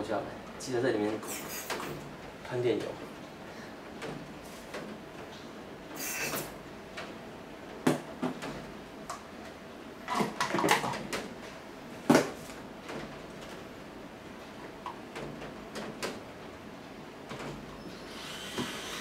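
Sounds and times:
fan parts knocking and clattering: 0.0s - 5.5s, 6.3s - 17.8s
aerosol spray hiss: 1.3s - 1.8s, 6.0s - 6.5s.

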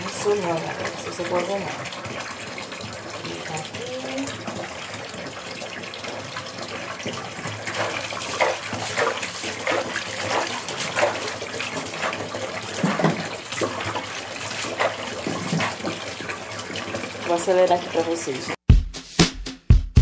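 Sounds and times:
water running and splashing: 0.0s - 18.6s
cloth scrubbing plastic grille: 7.5s - 16.3s.

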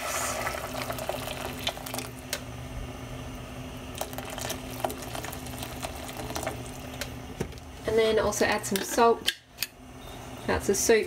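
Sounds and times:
boiling water bubbling in a pot: 0.0s - 7.8s
steady low hum: 0.0s - 11.0s.

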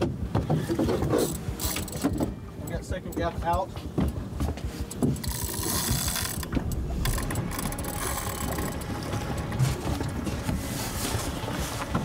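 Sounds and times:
fishing reel gears and drag: 1.1s - 2.2s, 5.0s - 9.4s.

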